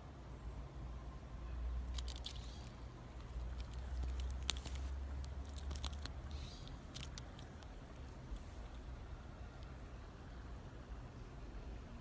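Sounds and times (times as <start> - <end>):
soft squishy rustles: 1.8 - 10.4
sharp clicks: 1.9 - 8.8.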